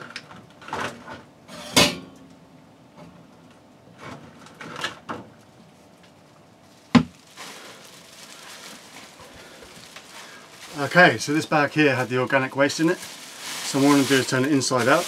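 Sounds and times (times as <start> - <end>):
plastic bag rustling: 6.6 - 15.0.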